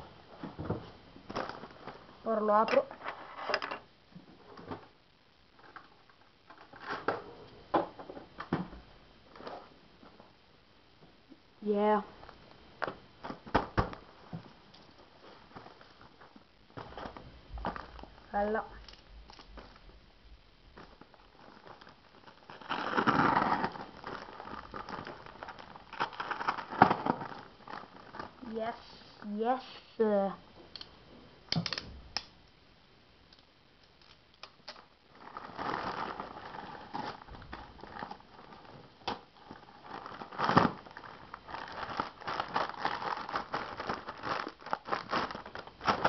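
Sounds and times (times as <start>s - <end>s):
package wrapping crinkling: 20.7s - 28.5s, 33.8s - 46.0s
clicks and rustles of handled objects: 33.3s - 46.0s.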